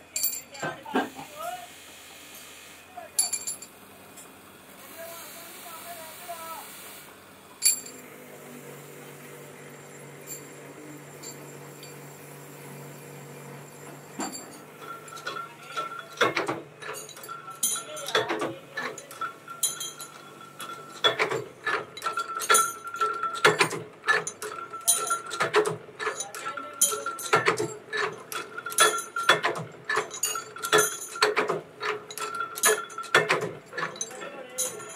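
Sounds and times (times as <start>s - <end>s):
metal clinks and clanks: 0.1s - 1.2s, 3.2s - 4.4s, 7.6s - 8.1s, 9.7s - 34.9s.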